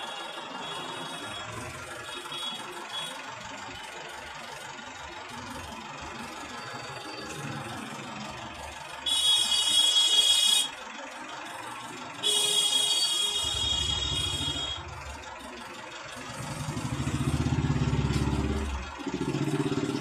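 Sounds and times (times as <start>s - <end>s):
loud high-pitched vehicle horn: 0.0s - 3.2s, 9.0s - 10.8s, 12.2s - 14.9s
city traffic engines: 0.0s - 20.0s.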